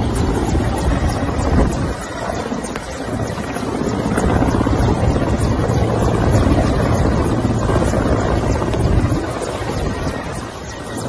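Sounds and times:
helicopter rotor chop: 0:00.0 - 0:11.0.

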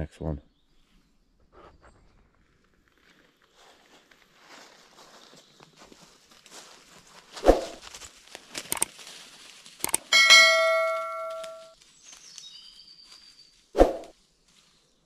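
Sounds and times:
metallic ding: 0:09.9 - 0:11.7.

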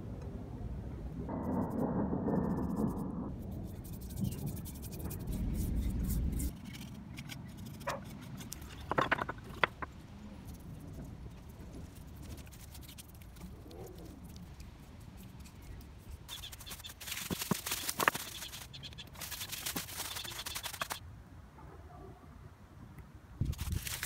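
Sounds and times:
sharp crackle: 0:10.4 - 0:21.0, 0:23.4 - 0:24.0
cling film crinkling: 0:11.6 - 0:21.0, 0:23.4 - 0:24.0.

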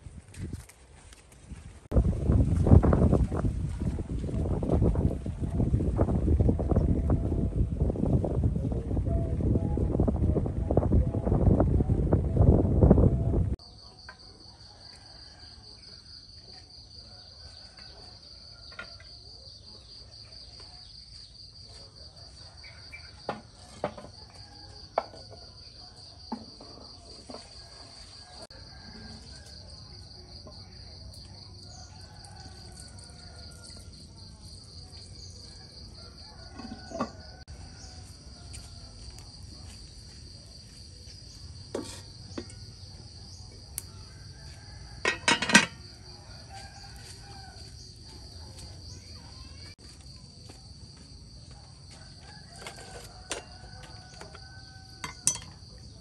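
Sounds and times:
high-pitched insect chorus trilling: 0:28.0 - 0:56.0.

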